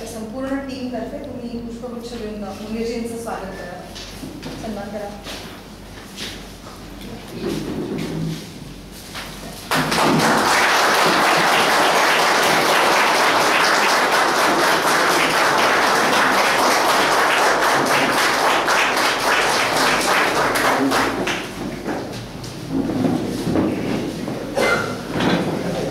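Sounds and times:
audience applauding: 9.7s - 21.6s.

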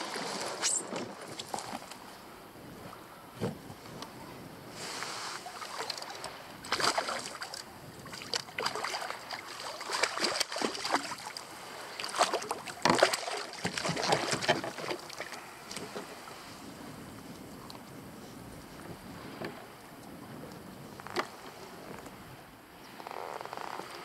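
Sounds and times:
fish thrashing and splashing: 5.7s - 7.6s, 8.2s - 11.4s, 12.0s - 15.3s.

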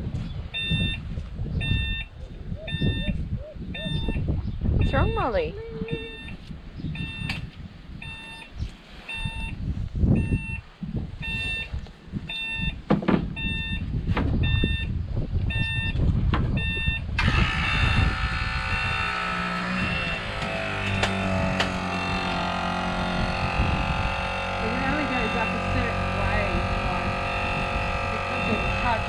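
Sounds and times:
truck warning beeper chirping: 0.5s - 4.2s, 4.8s - 16.0s, 16.6s - 29.0s
knocks: 12.9s - 13.3s
loud steady noise: 17.2s - 29.0s.

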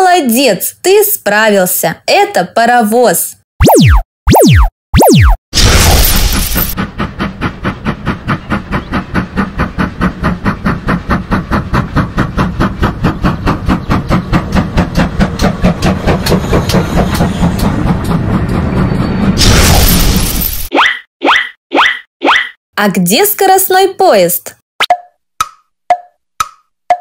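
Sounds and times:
steam locomotive exhaust chuffs: 5.6s - 20.2s
low rumble of train: 6.8s - 20.1s.

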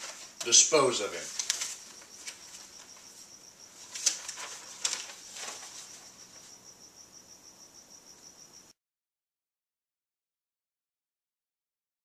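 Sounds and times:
paper crinkles: 0.0s - 6.5s
paper rustling and shuffling: 0.0s - 6.6s.

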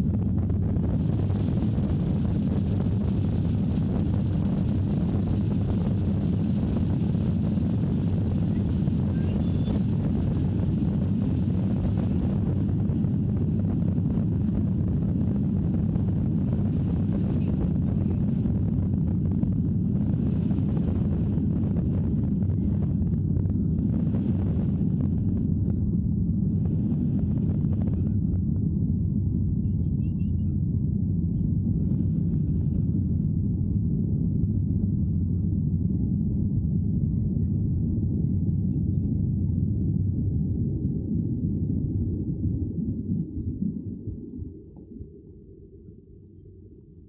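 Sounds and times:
wheels rumbling on runway: 0.0s - 25.9s
jet engines rumbling: 0.0s - 46.8s.

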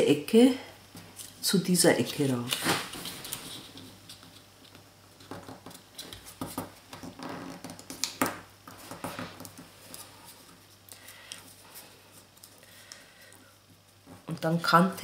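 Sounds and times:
paper crinkling and rustling: 2.3s - 4.6s.

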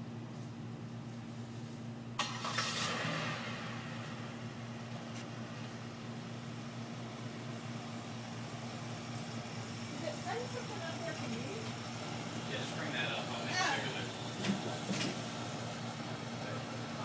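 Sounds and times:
low electrical hum: 0.0s - 17.0s
car driving by: 2.2s - 5.2s.

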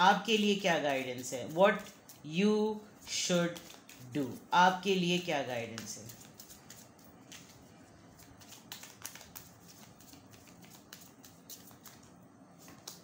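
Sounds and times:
cards being shuffled: 0.8s - 2.2s, 3.0s - 4.5s, 5.6s - 13.0s.

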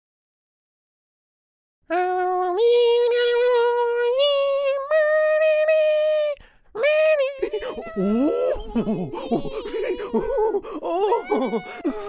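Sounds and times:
high childlike voice singing: 1.9s - 12.0s.

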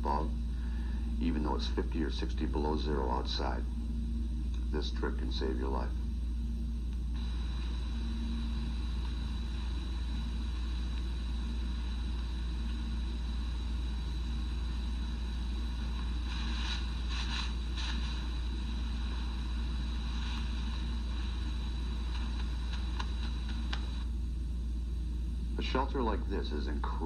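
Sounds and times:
old recording hum and hiss: 0.0s - 27.0s.

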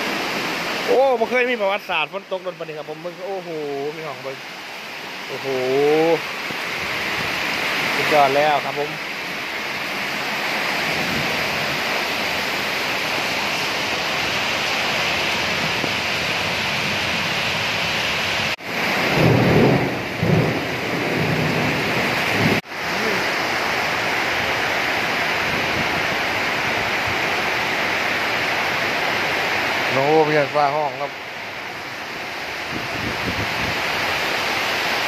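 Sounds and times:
heavy rain hissing: 0.0s - 35.0s
water pouring off a roof: 0.0s - 35.0s
low rumble of thunder: 18.8s - 22.6s.

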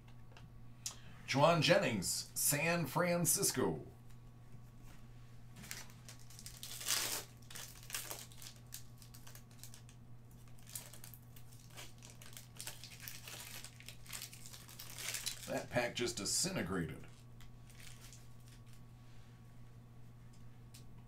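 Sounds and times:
foil wrapper tearing and crinkling: 5.6s - 15.8s, 17.4s - 18.8s.

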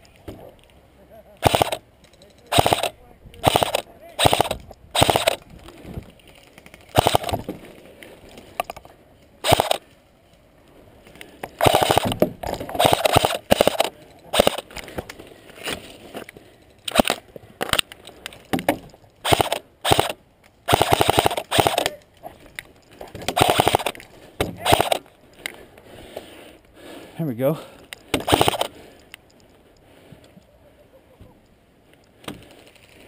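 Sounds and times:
airsoft rifles firing full-auto: 1.4s - 1.8s, 2.5s - 5.4s, 6.9s - 7.4s, 9.4s - 9.8s, 11.6s - 12.2s, 12.8s - 14.6s, 19.2s - 21.9s, 23.4s - 24.0s, 24.6s - 25.0s, 28.2s - 28.7s.

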